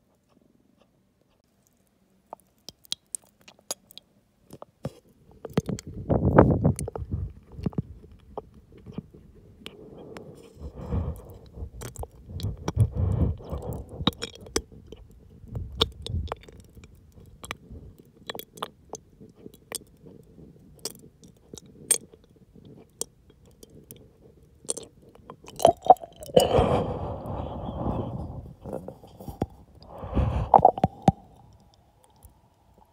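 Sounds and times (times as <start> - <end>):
saliva clicks and tongue smacks: 0.2 - 4.8, 11.8 - 17.6, 18.2 - 19.9, 24.6 - 26.5
low throat rumbles: 9.7 - 16.5, 25.6 - 31.6
swallow gulp: 9.7 - 18.7, 24.6 - 32.3.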